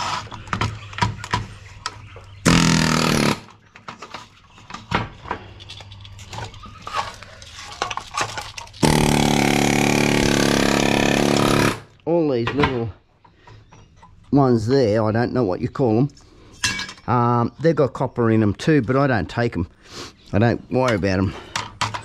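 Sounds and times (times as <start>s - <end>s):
pneumatic air hammer: 2.4s - 3.5s, 8.8s - 11.9s
loose parts clattering: 3.5s - 9.2s, 16.1s - 17.1s, 20.8s - 22.0s.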